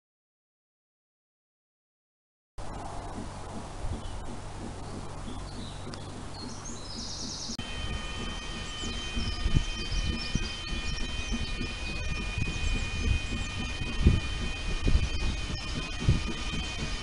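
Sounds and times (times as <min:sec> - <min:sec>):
birds chirping: 0:02.6 - 0:17.0
wind rumble on microphone: 0:02.6 - 0:17.0
level crossing warning alarm: 0:05.0 - 0:17.0.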